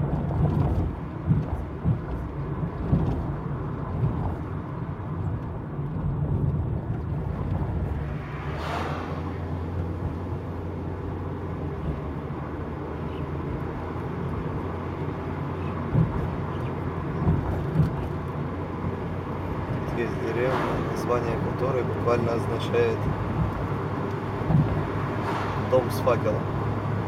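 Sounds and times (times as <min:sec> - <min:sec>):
short thumps: 0:00.0 - 0:04.6, 0:15.8 - 0:18.3, 0:23.1 - 0:25.8
car engine and road hum: 0:00.0 - 0:27.0
wind: 0:00.0 - 0:27.0
brief whoosh: 0:08.3 - 0:09.5, 0:25.2 - 0:25.8.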